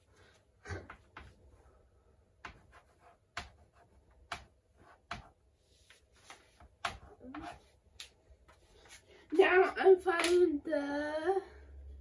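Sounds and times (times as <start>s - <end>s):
chalk tapping on chalkboard: 2.4s - 7.7s.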